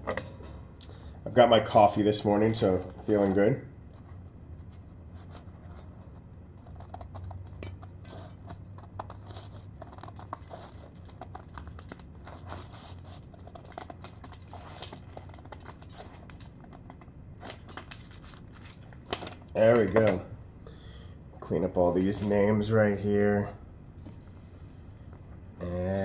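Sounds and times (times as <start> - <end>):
paper rustling: 4.0 - 19.8.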